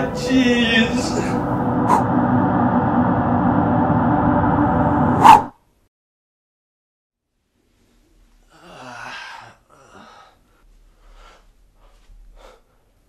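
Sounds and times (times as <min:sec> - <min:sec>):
soft breaths: 0:07.8 - 0:13.0
person groaning: 0:08.5 - 0:10.4.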